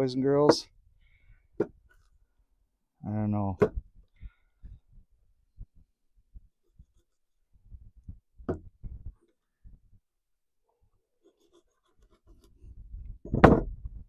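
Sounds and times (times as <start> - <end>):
knife cutting and scraping on wood: 11.1 - 12.8.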